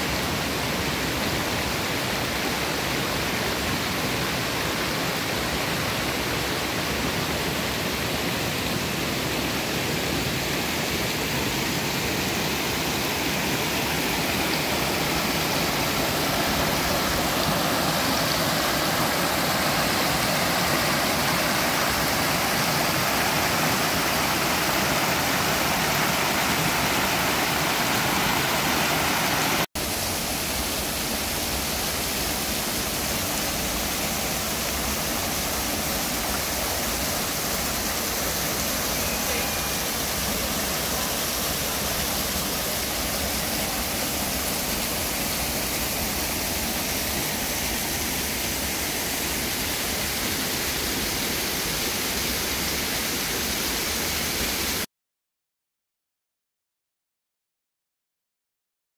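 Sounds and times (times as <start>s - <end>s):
stream rushing over rocks: 0.0s - 54.9s.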